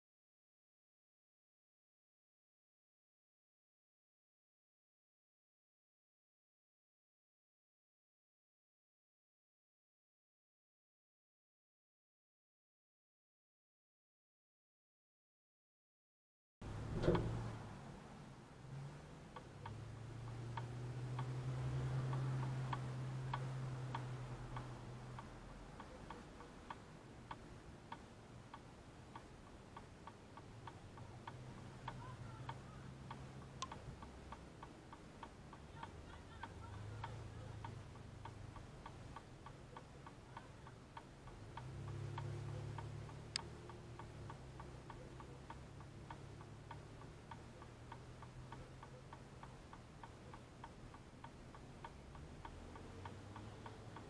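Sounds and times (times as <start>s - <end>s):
passing traffic hum: 16.6s - 54.0s
indicator flasher ticking: 19.3s - 54.0s.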